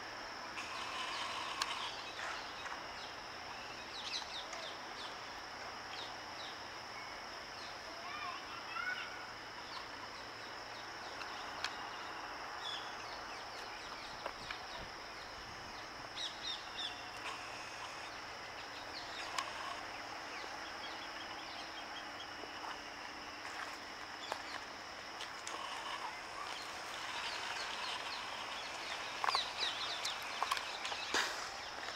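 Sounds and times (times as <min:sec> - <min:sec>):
high-pitched background hiss: 0:00.0 - 0:31.9
birds chirping: 0:09.7 - 0:31.9.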